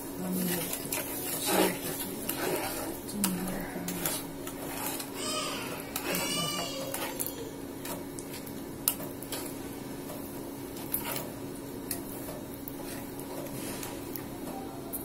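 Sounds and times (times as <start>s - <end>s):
spatula scraping a metal pan: 0.3s - 9.5s, 10.8s - 11.4s.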